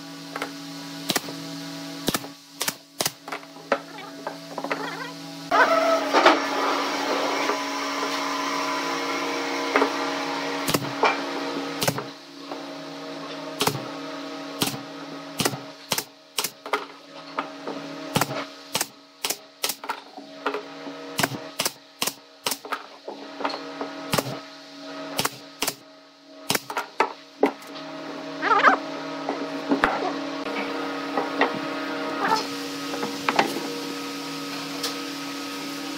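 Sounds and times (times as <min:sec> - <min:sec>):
nail gun shots: 0:15.4 - 0:16.6, 0:21.2 - 0:22.6, 0:25.2 - 0:25.8, 0:26.5 - 0:26.8.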